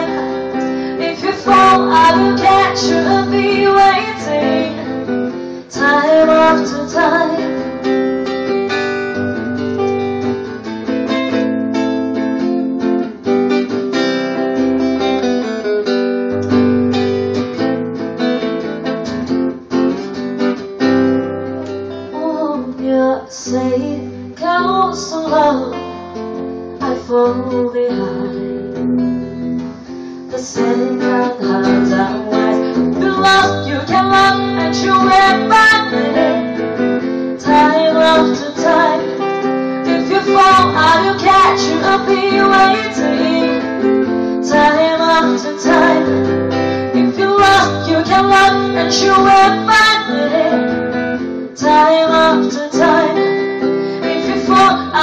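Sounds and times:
woman singing: 0.0 - 9.2, 21.6 - 28.8, 30.3 - 55.0
electric guitar playing chords: 0.0 - 22.7, 23.6 - 55.0.

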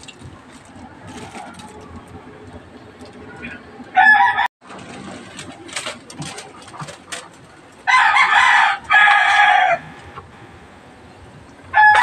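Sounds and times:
rooster crowing: 3.9 - 4.5, 7.9 - 9.9, 11.7 - 12.0.

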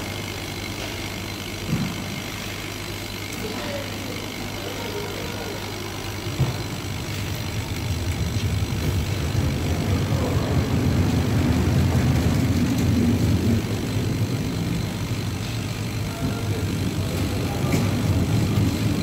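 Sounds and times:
laser cutter mechanical drone: 0.0 - 19.0.

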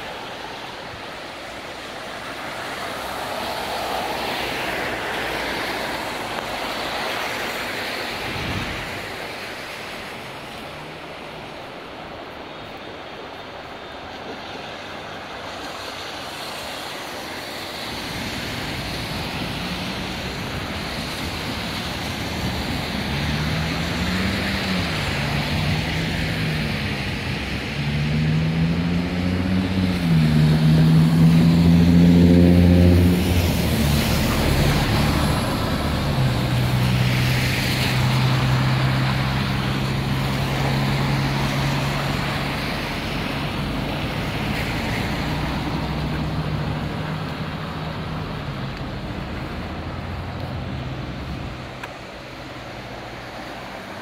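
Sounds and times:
rain hissing on wet road: 0.0 - 54.0
vehicle engine revving: 27.8 - 36.5.

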